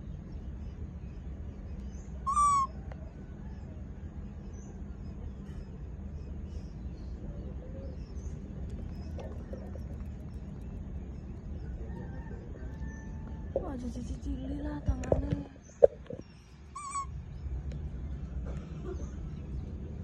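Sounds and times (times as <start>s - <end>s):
steady low hum: 0.0s - 20.0s
baby macaque coo call: 2.2s - 2.9s, 16.7s - 17.1s.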